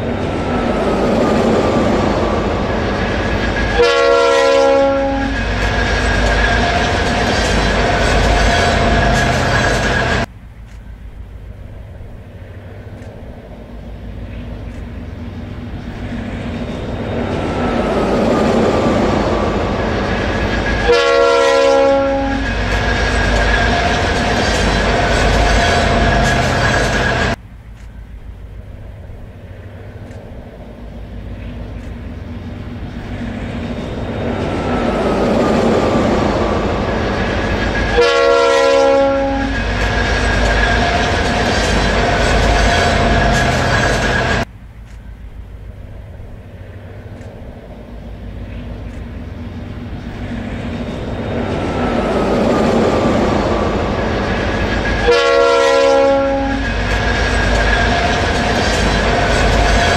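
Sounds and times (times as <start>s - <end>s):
freight train rumbling: 0.0s - 59.9s
locomotive air horn blast: 3.7s - 5.4s, 20.8s - 22.5s, 37.9s - 39.6s, 55.0s - 56.7s.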